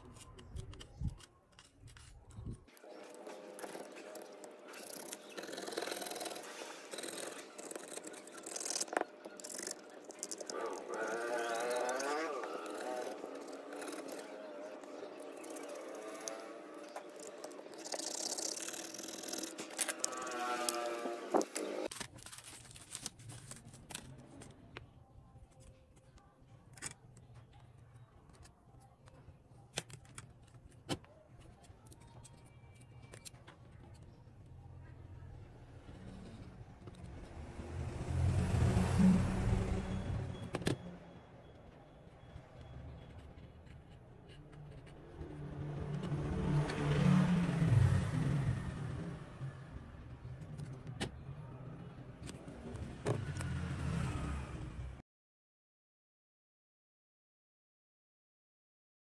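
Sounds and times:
metal blade scraping metal frame: 2.8 - 21.9
bubble wrap crinkling: 19.6 - 24.2.

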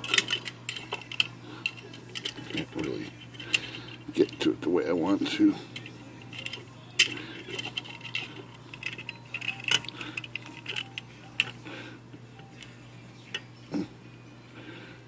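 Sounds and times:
metal tools clicking and scraping: 0.0 - 11.6.

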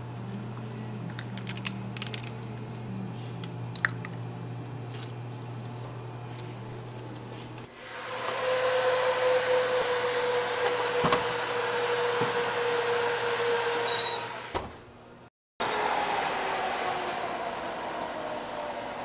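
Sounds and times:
convection oven fan humming: 0.0 - 19.0
oven door shutting: 10.6 - 11.5.

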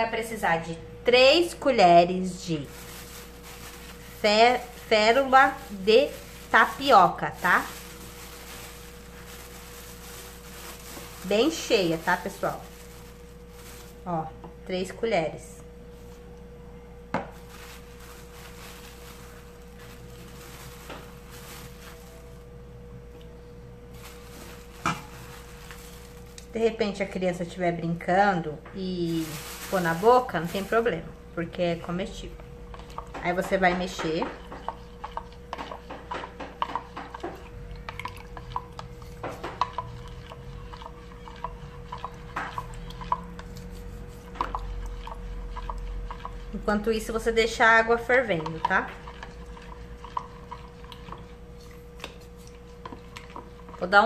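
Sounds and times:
faint steady hum: 0.0 - 54.0
plastic bag rustling: 2.4 - 14.3, 17.3 - 22.4, 23.9 - 26.5, 28.9 - 31.1.

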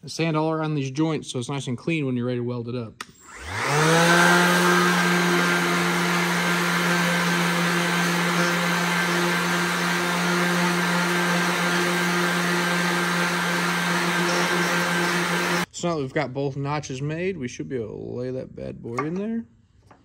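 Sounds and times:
orbital sander motor hum: 3.2 - 15.7
sanding disc scrubbing metal: 3.7 - 15.6.

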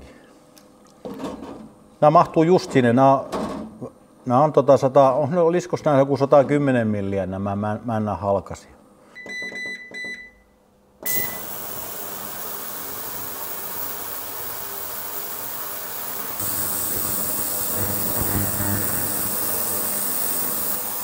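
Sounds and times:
ultrasonic cleaner hissing buzz: 11.0 - 21.0.

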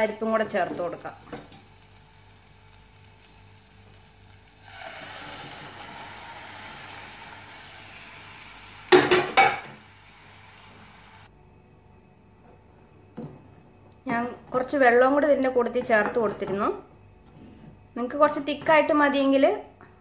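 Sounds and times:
food sizzling in a pan: 0.0 - 11.3
knocks against a pan: 8.9 - 9.8.

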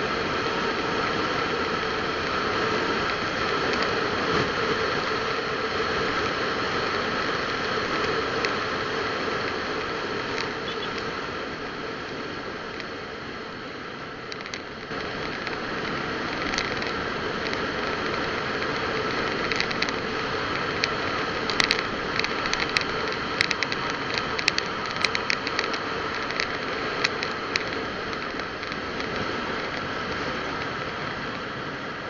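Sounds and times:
road and engine noise: 0.0 - 32.0
sharp clicks and rattles: 9.4 - 11.1, 14.2 - 31.5.

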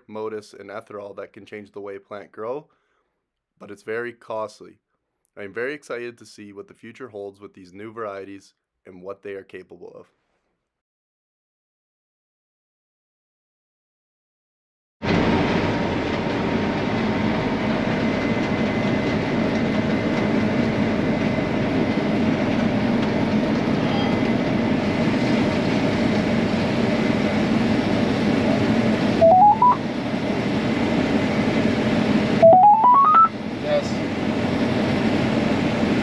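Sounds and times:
rising beeps: 29.2 - 29.8, 32.4 - 33.3.

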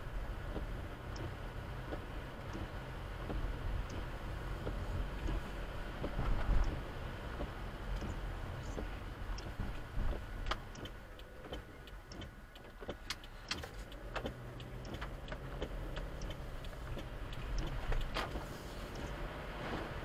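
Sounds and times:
car engine and road rumble: 0.0 - 20.0
sharp clicks and taps: 7.4 - 19.2.

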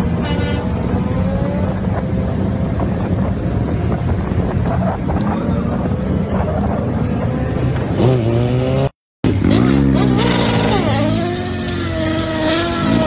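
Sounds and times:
wind noise on microphone: 0.0 - 8.8
motorcycle engine revving: 0.0 - 13.0.

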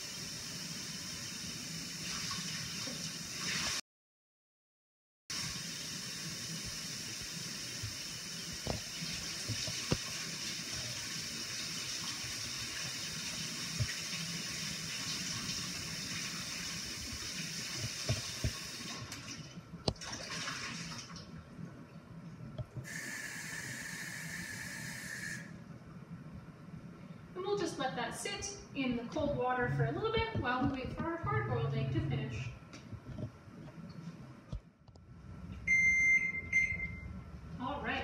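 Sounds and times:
tap running water into a bowl: 6.6 - 14.2, 17.0 - 19.3.

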